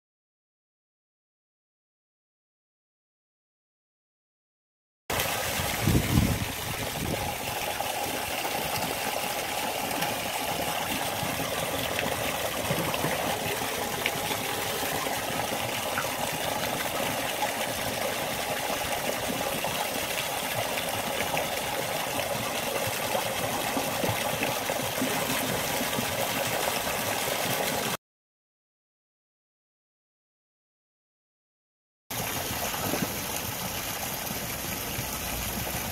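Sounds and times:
churning water rushing: 0:05.1 - 0:28.0, 0:32.1 - 0:35.9.

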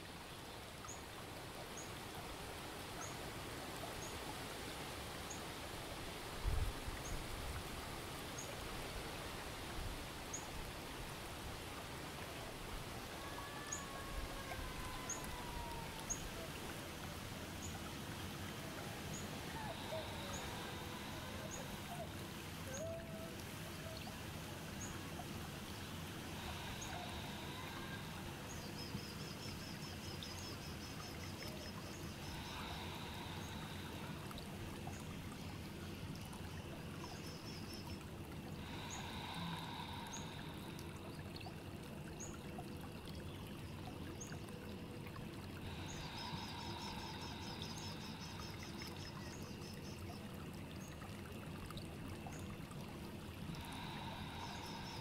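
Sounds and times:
steady rush like running water: 0:00.0 - 0:55.0
tapir breathing slowly: 0:13.0 - 0:23.0, 0:25.6 - 0:29.3, 0:31.7 - 0:36.1, 0:38.4 - 0:41.7, 0:45.5 - 0:50.0, 0:53.0 - 0:55.0.

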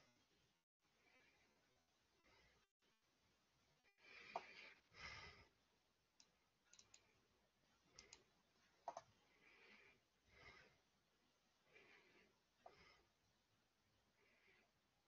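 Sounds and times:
faint sharp clicks: 0:06.2 - 0:07.1, 0:07.9 - 0:09.1.

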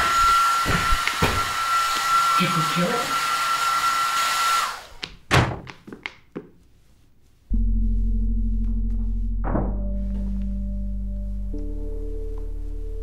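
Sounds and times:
appliance motor whining: 0:00.0 - 0:05.1
low steady droning tone: 0:07.5 - 0:13.0.

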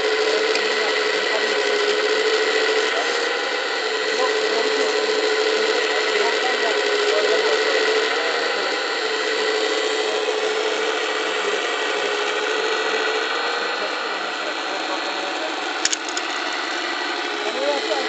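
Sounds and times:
hydraulic pump whining: 0:00.0 - 0:18.0.

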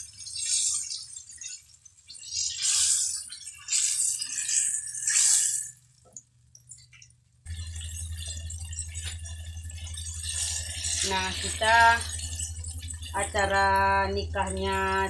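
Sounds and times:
hot oil sizzling: 0:00.0 - 0:06.2, 0:06.8 - 0:15.0
steady low hum: 0:07.4 - 0:15.0.

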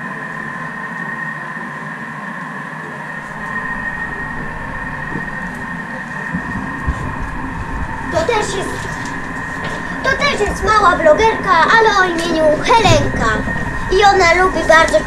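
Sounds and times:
kitchen appliance motor humming: 0:03.2 - 0:15.0
low rumble: 0:03.2 - 0:15.0.

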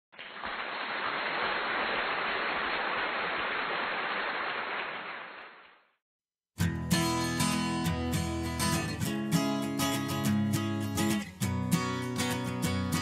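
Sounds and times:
strummed acoustic guitar music: 0:06.6 - 0:13.0.

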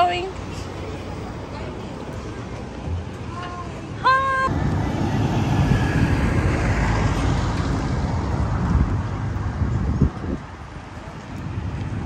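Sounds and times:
lorry driving past: 0:04.4 - 0:08.7.

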